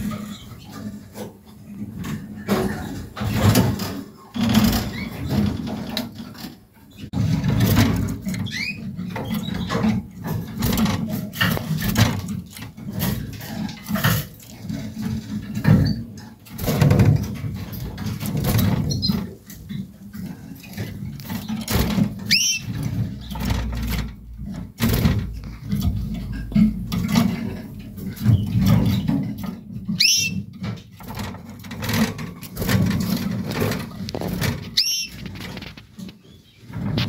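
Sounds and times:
rustling and scratching in nest: 0.0 - 37.0
canary chirps: 8.3 - 9.9, 18.6 - 19.8, 20.6 - 23.9, 28.0 - 30.9, 34.2 - 36.9.

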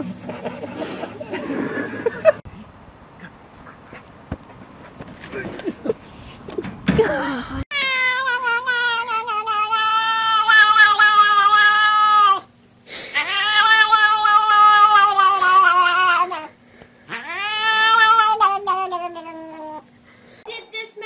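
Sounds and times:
cat yowling: 7.7 - 12.5, 13.2 - 16.5, 17.1 - 19.8.

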